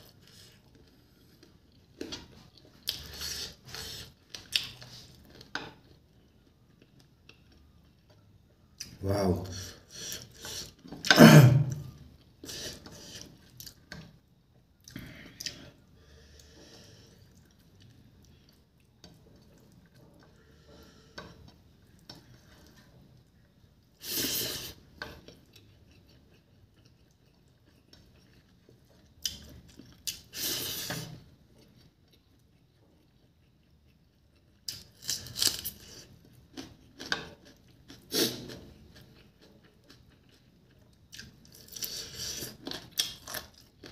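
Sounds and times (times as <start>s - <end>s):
chewing: 24.7s - 30.4s, 31.1s - 43.9s.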